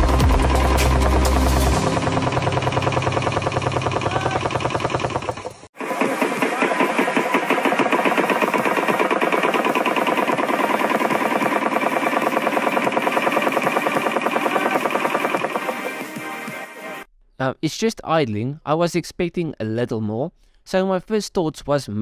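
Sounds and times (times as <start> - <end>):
rotary engine idling: 0.0 - 16.1.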